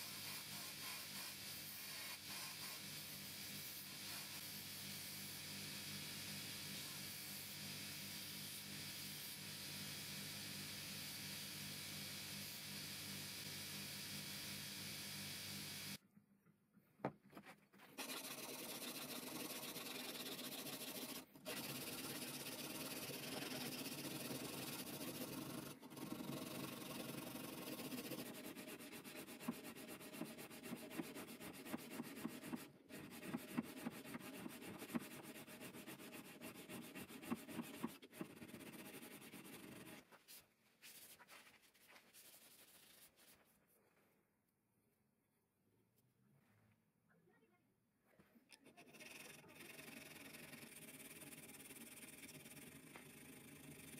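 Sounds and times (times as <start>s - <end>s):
sanding a steel blade: 0.0s - 11.4s, 18.0s - 40.1s, 48.8s - 53.9s.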